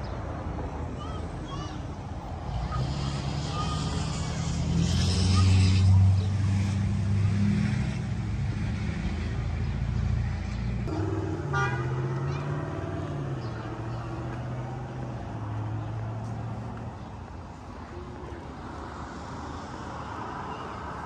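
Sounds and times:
traffic engine hum: 0.0 - 21.0
car horn toot: 10.9 - 12.3.

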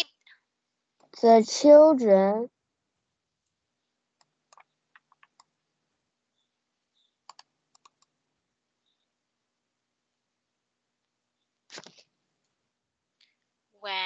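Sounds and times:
faint clicks: 4.2 - 5.5, 7.2 - 8.2.

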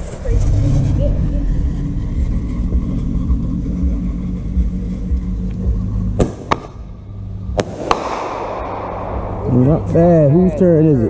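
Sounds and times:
car engine idling: 0.0 - 11.0
firework pops: 6.2 - 6.7, 7.6 - 8.3.

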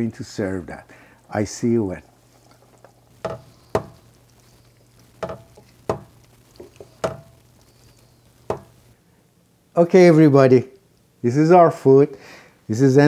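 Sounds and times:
utensil clinking against cookware: 2.5 - 4.1, 5.2 - 7.4, 8.5 - 8.8.

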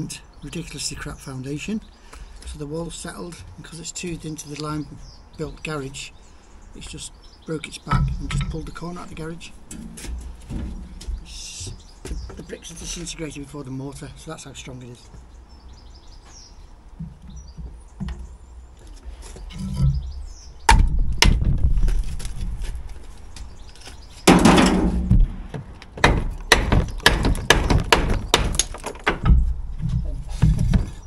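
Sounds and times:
clinks and knocks: 7.9 - 13.0, 23.7 - 25.3, 26.0 - 31.0
bricks knocked off a wall: 24.3 - 25.4, 26.0 - 31.0
rubble clattering into a wheelbarrow: 26.7 - 31.0.

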